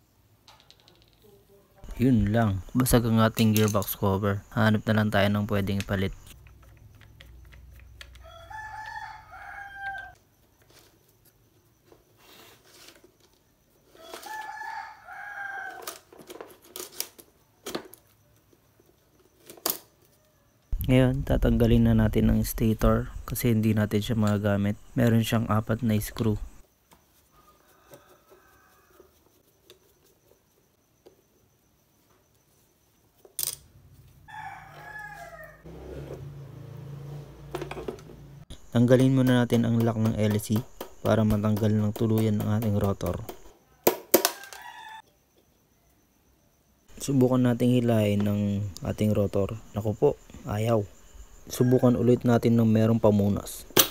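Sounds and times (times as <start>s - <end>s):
rooster crowing: 8.1s - 10.2s, 13.9s - 16.1s, 27.3s - 29.4s, 34.2s - 37.0s, 43.0s - 45.9s, 51.0s - 52.6s.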